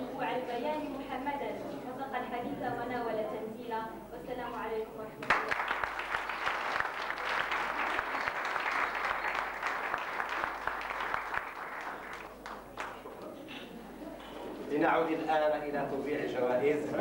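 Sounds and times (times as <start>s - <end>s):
audience applauding: 5.2s - 13.4s.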